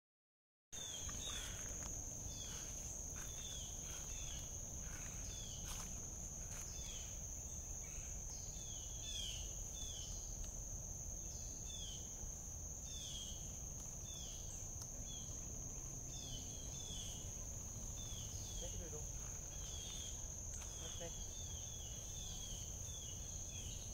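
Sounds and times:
high-pitched insect drone: 0.8 - 23.9.

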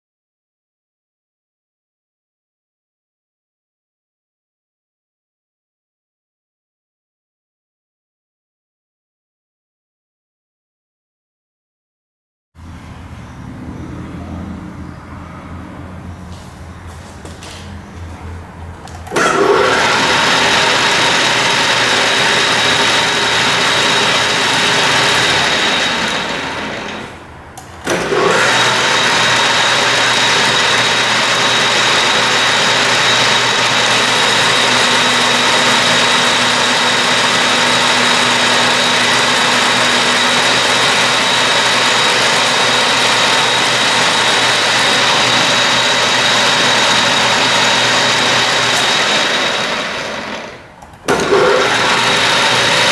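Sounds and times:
metal lathe running with whine: 19.1 - 27.2, 27.9 - 52.9.

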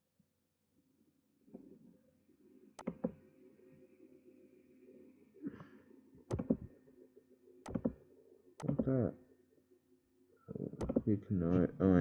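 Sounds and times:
computer mouse button clicks: 2.8 - 3.2, 6.3 - 6.7, 7.7 - 8.0.

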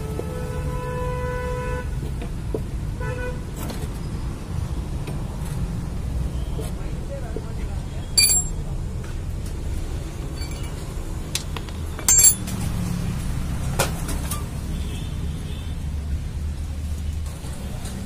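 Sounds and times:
spanner clinking on metal bolt: 8.2 - 8.6, 10.4 - 10.8, 11.4 - 12.5.

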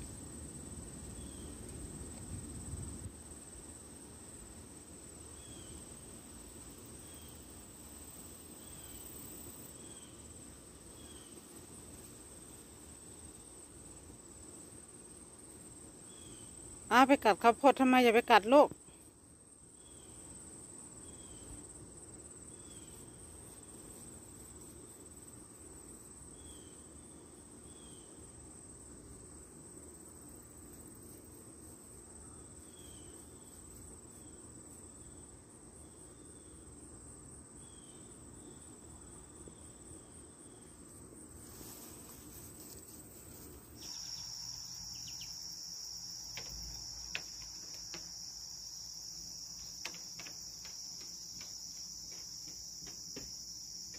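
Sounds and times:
insects trilling: 0.0 - 53.9
louder lower insect trill: 2.6 - 19.0, 32.0 - 53.9
soft short insect chirps: 43.8 - 53.9.

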